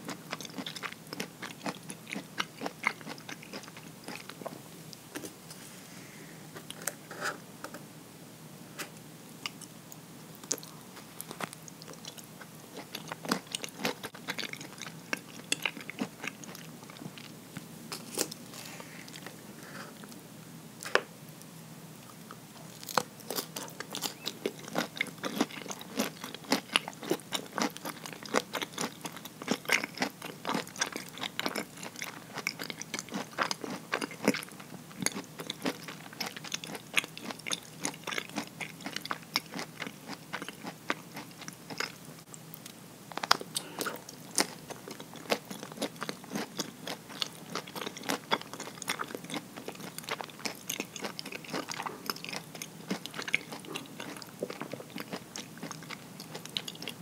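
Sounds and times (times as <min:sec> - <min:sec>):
chewing crunchy nuts: 0:00.0 - 0:05.4, 0:10.3 - 0:19.4, 0:22.0 - 0:57.0.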